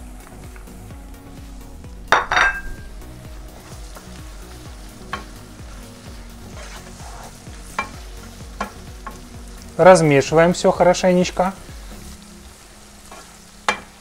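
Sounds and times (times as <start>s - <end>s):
onions sizzling in oil: 0.0s - 14.0s
spatula scraping a pan: 6.4s - 9.2s.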